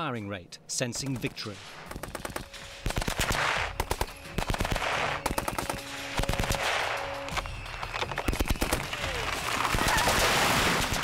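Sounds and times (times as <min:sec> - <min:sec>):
machine gun firing bursts: 0:01.9 - 0:07.1.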